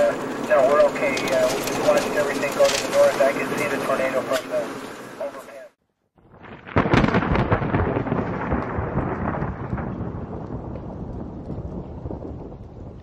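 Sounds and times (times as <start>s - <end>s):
steady rain: 0.0s - 5.7s, 6.3s - 13.0s
thunder crack and rumble: 6.2s - 13.0s.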